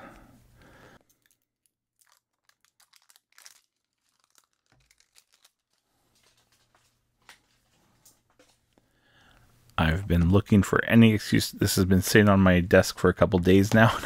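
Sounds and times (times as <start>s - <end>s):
faint handling clicks and crinkles: 1.0s - 10.4s.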